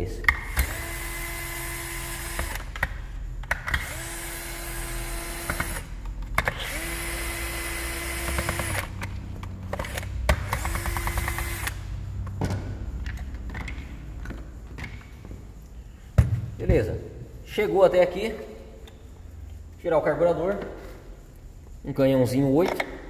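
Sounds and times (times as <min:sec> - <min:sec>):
clicks of screws and tools: 0:13.0 - 0:15.0.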